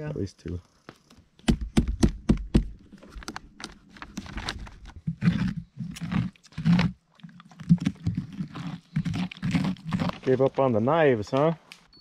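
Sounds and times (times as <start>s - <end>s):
hand scraping pumpkin pulp: 2.6s - 11.6s.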